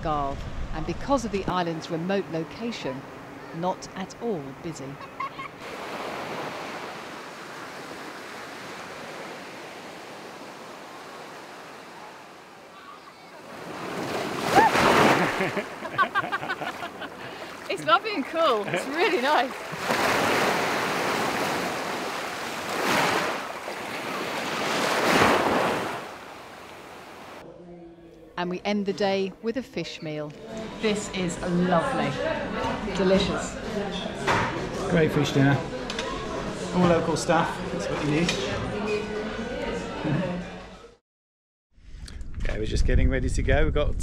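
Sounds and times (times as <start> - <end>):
small waves breaking on shore: 5.3 - 27.4
small surf on sandy beach: 5.6 - 27.4.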